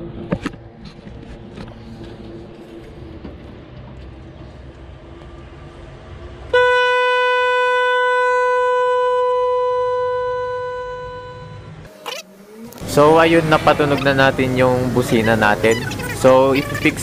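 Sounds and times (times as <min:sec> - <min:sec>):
electric car horn note: 0:06.5 - 0:13.0.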